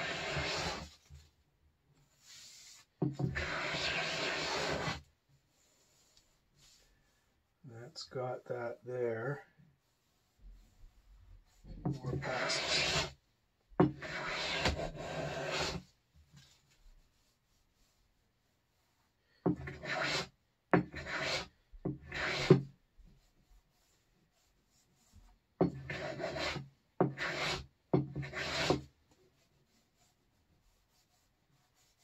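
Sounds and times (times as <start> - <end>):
hand plane shaving wood: 0.0 - 0.9, 3.3 - 5.0, 12.0 - 13.2, 14.0 - 15.8, 19.6 - 22.6, 25.7 - 28.9.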